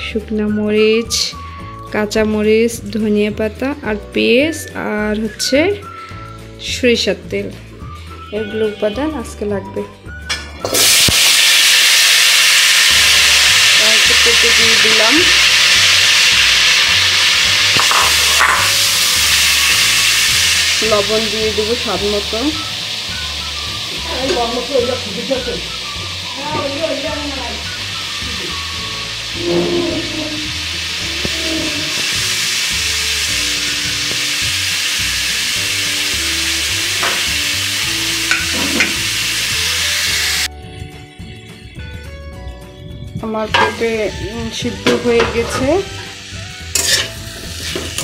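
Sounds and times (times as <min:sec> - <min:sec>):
soft background music with beat: 0:00.0 - 0:11.4, 0:16.7 - 0:48.0
food sizzling in hot pan: 0:10.5 - 0:40.5, 0:43.4 - 0:48.0.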